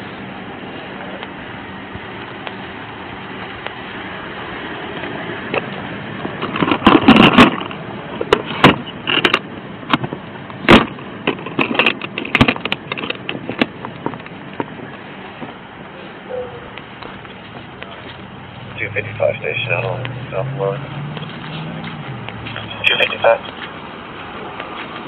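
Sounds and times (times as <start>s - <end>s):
things clacking in a plastic case: 6.4s - 10.1s.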